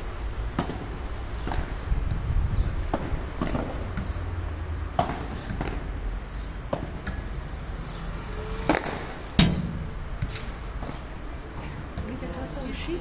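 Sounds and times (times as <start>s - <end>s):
ball bouncing on court: 4.9s - 5.9s
padel ball struck by rackets: 5.0s - 5.9s.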